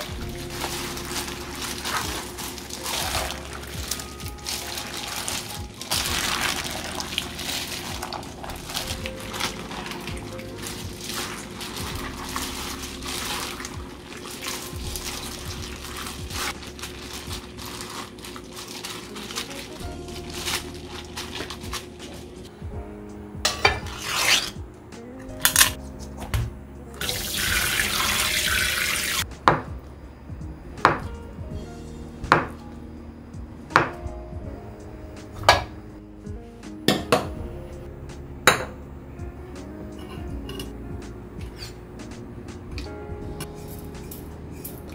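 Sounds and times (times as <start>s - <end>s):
water splashing and running: 0.0s - 22.2s, 27.0s - 29.2s
kitchenware knocking: 23.4s - 24.0s, 35.4s - 35.7s, 38.5s - 38.8s
dishes clinking: 23.5s - 24.5s.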